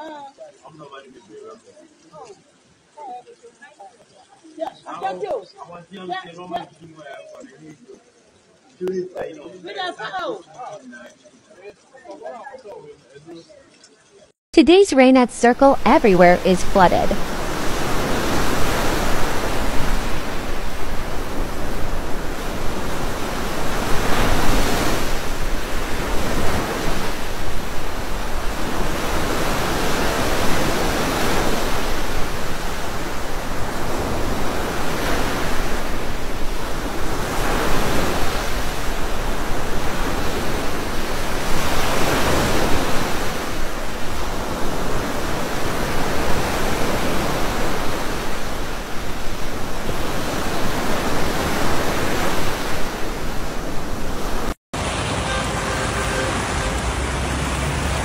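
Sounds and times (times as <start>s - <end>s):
floodwater rushing: 15.7s - 58.0s.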